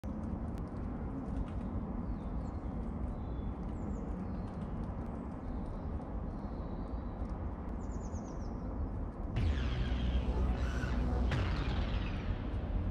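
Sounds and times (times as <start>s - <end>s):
small birds chirping: 1.9s - 9.0s
steady low rumble: 8.9s - 12.9s.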